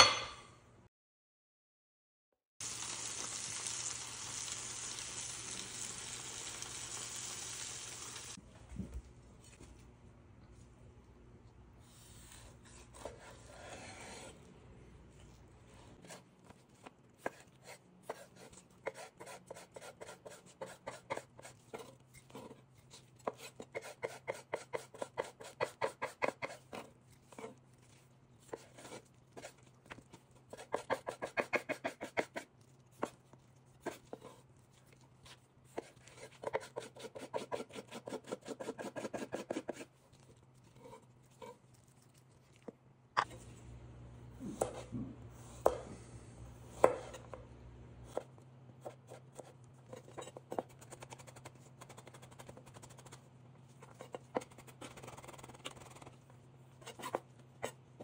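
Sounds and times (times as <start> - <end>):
knife chopping on wooden board: 30.6 - 32.5, 35.7 - 39.9, 44.4 - 46.0, 46.7 - 47.4.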